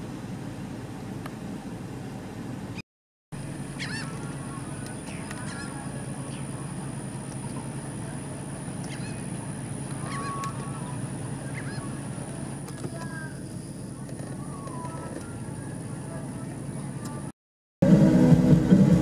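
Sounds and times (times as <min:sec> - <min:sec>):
birds calling: 0:03.4 - 0:16.0
steady low hum: 0:03.4 - 0:19.0.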